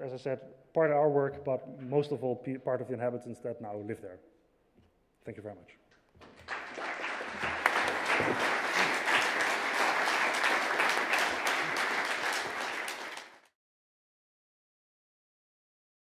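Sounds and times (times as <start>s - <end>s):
audience applauding: 6.2s - 13.5s.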